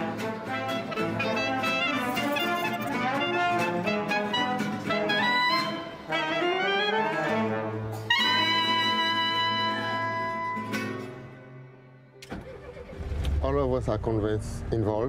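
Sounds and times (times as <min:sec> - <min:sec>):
small jazz band playing: 0:00.0 - 0:11.6.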